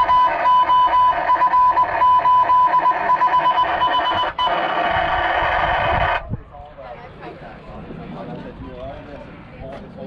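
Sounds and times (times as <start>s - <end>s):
high electronic beeps: 0.0s - 4.7s.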